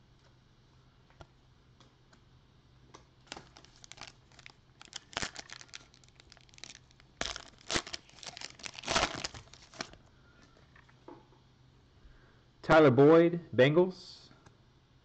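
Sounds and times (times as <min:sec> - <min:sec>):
foil wrapper tearing and crinkling: 0:03.2 - 0:10.0.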